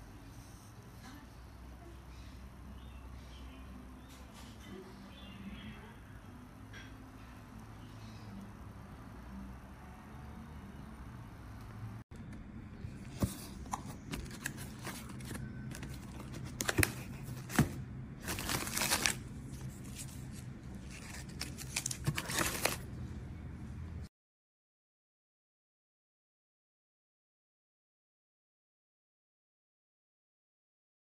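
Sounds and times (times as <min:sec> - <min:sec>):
low steady hum: 0:00.0 - 0:24.1
paper packaging rustling and crinkling: 0:12.9 - 0:22.9.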